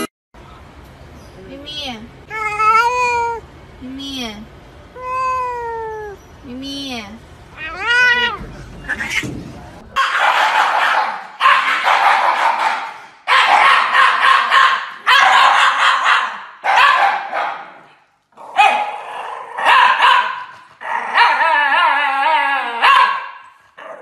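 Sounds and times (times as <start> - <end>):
dogs howling: 20.8 - 23.1.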